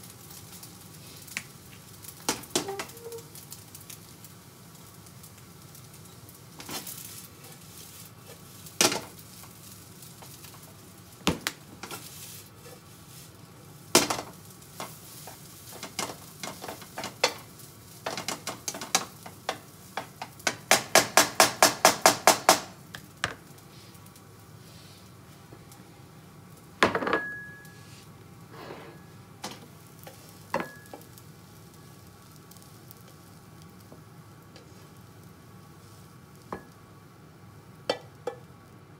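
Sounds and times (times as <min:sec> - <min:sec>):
faint frying sizzle: 0:00.0 - 0:38.9
spatula tapping frying pan: 0:18.0 - 0:23.4, 0:37.9 - 0:38.5.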